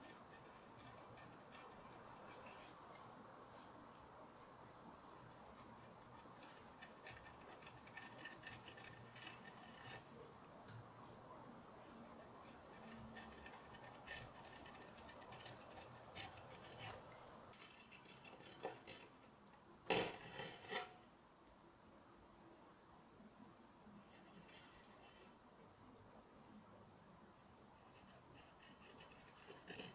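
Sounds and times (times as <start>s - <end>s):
carving gouge scraping wood: 0.0s - 3.0s, 5.5s - 10.1s, 11.9s - 19.1s, 20.2s - 21.0s, 27.9s - 29.9s.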